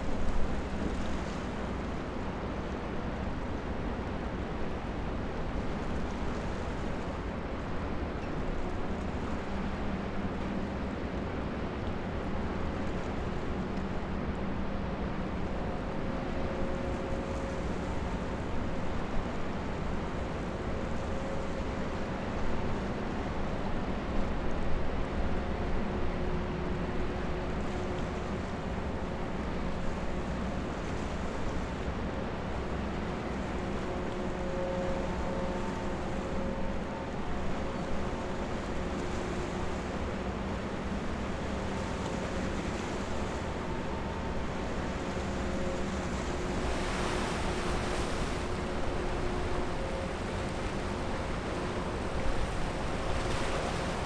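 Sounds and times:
ship engine rumble: 0.0 - 54.0
water noise: 0.0 - 54.0
faint hum: 26.7 - 54.0.

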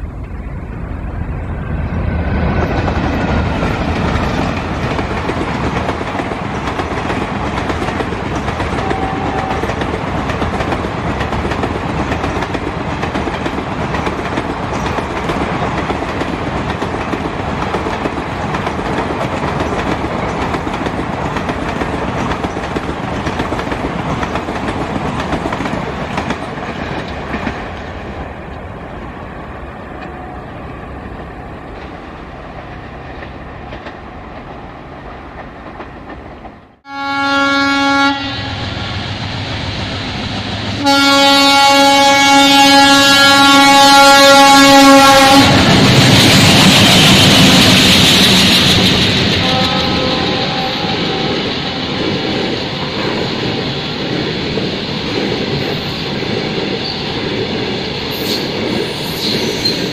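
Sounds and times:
diesel locomotives passing: 0.0 - 59.9
train wheels clattering over rails: 2.2 - 28.5, 45.1 - 59.9.

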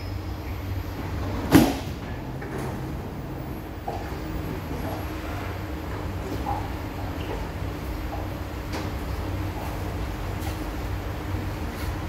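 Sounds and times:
low hum of stopped train: 0.0 - 12.0
train doors clunking open: 1.0 - 4.2.

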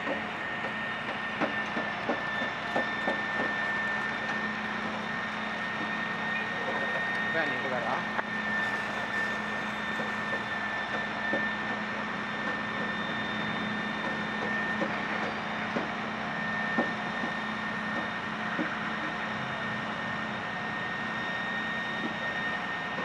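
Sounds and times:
constant high tone: 0.0 - 15.4.

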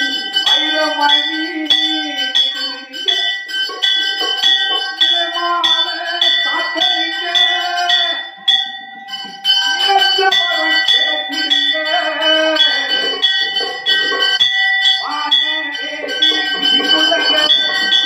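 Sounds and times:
temple bell ringing: 0.0 - 18.0.

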